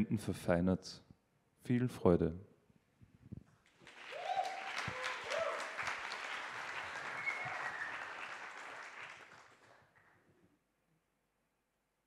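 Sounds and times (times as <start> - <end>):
audience applauding: 3.7 - 10.2.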